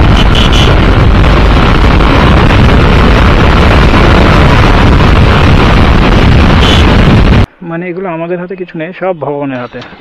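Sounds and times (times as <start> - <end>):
wind roar on microphone: 0.0 - 7.5.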